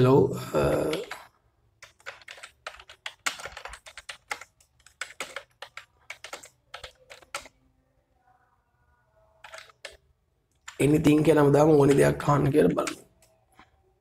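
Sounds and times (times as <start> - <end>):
typing on computer keyboard: 0.7 - 7.6, 9.4 - 13.7.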